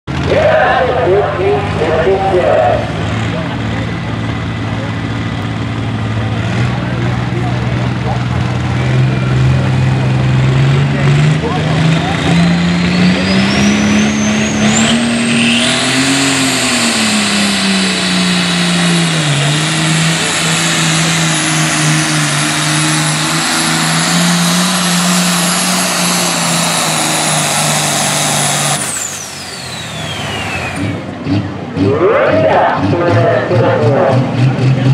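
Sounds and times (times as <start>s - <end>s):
high-pitched turbo whine: 0.1s - 4.1s, 10.0s - 34.4s
diesel tractor engine running flat out: 0.1s - 34.9s.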